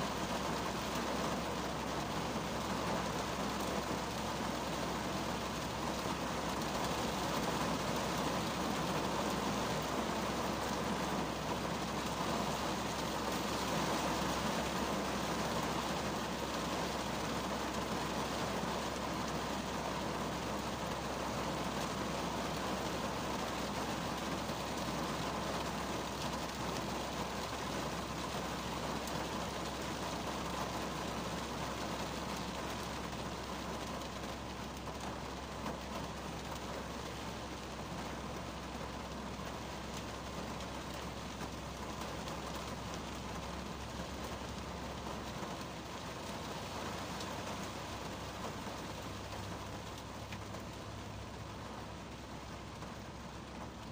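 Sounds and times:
rain on car roof: 0:00.0 - 0:53.9.

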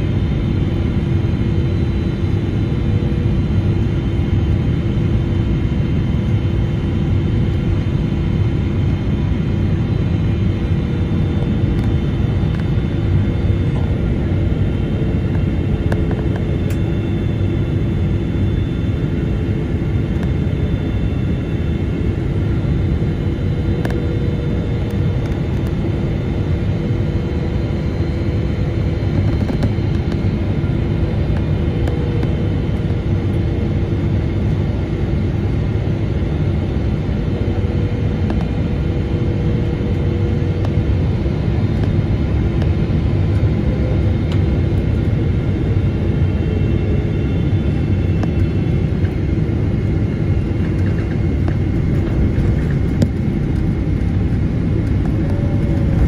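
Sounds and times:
jet engines and airflow rumble: 0:00.0 - 0:56.0
whining engine tones: 0:37.2 - 0:56.0.

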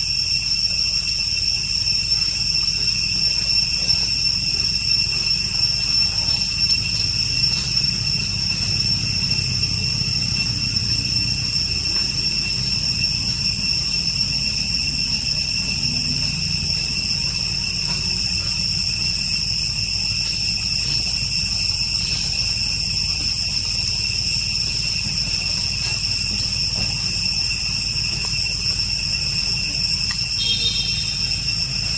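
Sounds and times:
insects buzzing: 0:00.0 - 0:31.9.

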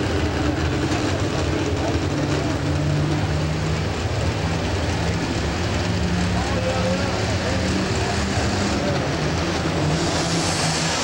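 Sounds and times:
tractor engine revving hard: 0:02.2 - 0:11.0.

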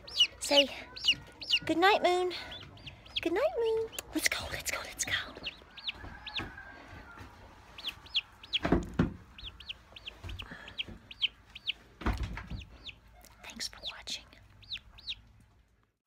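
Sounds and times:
chick peeping: 0:00.0 - 0:15.4
loud knocks: 0:08.6 - 0:09.3.

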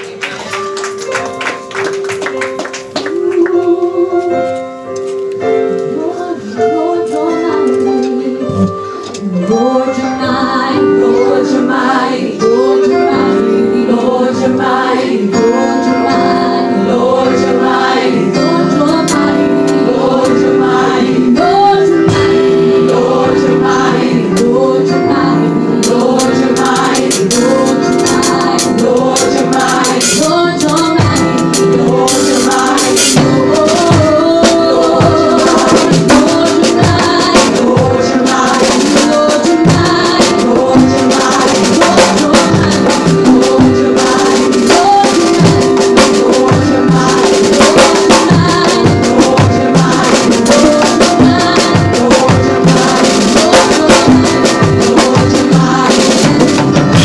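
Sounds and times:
congas playing: 0:00.0 - 0:04.5, 0:16.2 - 0:57.0
live church band music: 0:00.0 - 0:57.0
sustained keyboard chords: 0:00.0 - 0:57.0.

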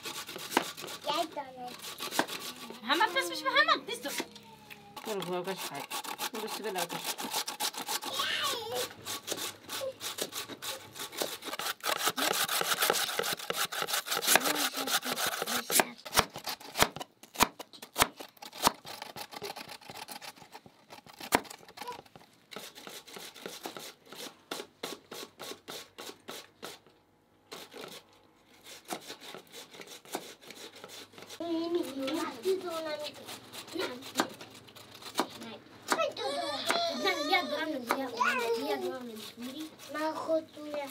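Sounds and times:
knife chopping on wooden board: 0:00.0 - 0:01.0, 0:01.8 - 0:02.6, 0:10.1 - 0:19.0, 0:28.8 - 0:31.4, 0:34.0 - 0:36.1
potatoes grated on metal grater: 0:00.0 - 0:04.2, 0:05.0 - 0:16.9, 0:18.4 - 0:26.8, 0:28.6 - 0:35.6, 0:37.0 - 0:40.9
rhythmic scraping strokes: 0:00.0 - 0:04.2, 0:05.0 - 0:16.0, 0:28.6 - 0:35.6, 0:37.8 - 0:40.9.

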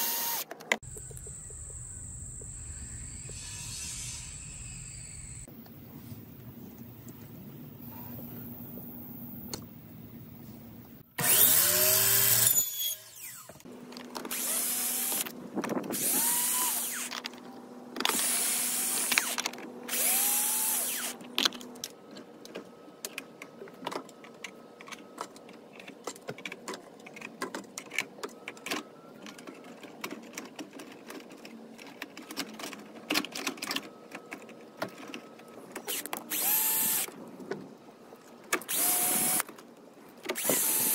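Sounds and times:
cordless drill bursts: 0:00.0 - 0:00.4, 0:11.2 - 0:13.5, 0:14.3 - 0:15.3, 0:16.0 - 0:17.1, 0:18.1 - 0:21.2, 0:35.9 - 0:37.1, 0:38.7 - 0:39.4, 0:40.4 - 0:40.9.

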